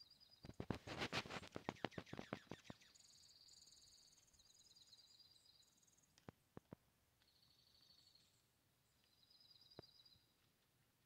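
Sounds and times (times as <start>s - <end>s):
songbird trills: 1.4s - 6.3s, 7.2s - 10.5s.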